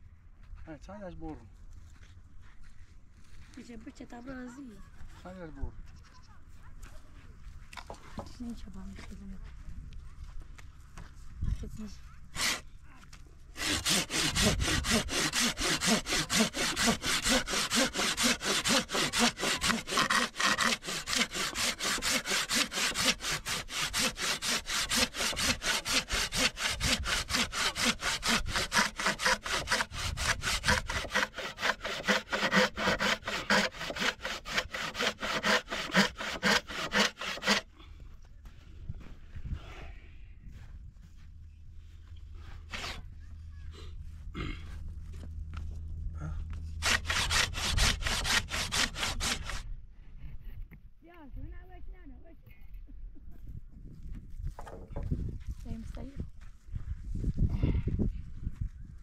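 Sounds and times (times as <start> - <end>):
rhythmic rasping strokes: 13.6 - 37.6, 46.8 - 49.6.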